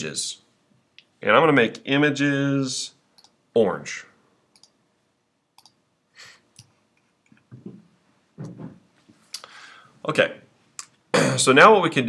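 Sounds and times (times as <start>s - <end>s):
computer mouse clicks: 4.5s - 4.8s, 5.6s - 5.8s.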